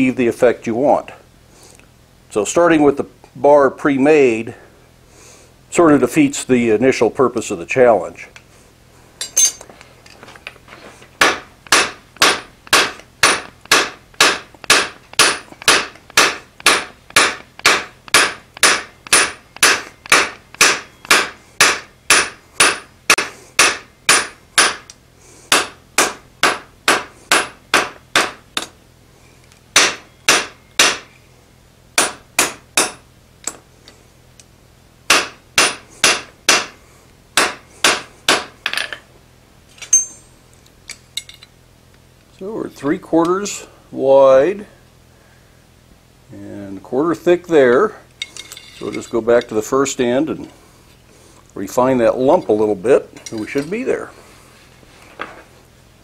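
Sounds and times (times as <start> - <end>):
hammer striking steel on anvil: 9.2 - 9.6, 11.2 - 24.9, 25.5 - 28.8, 29.8 - 31.0, 32.0 - 33.6, 35.1 - 36.8, 37.4 - 39.0.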